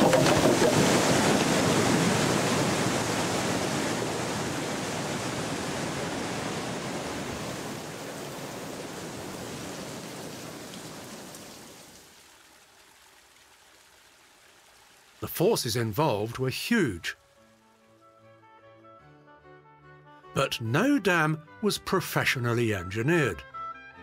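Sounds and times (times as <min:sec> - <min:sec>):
floodwater rushing down creek: 0:00.0 - 0:18.3.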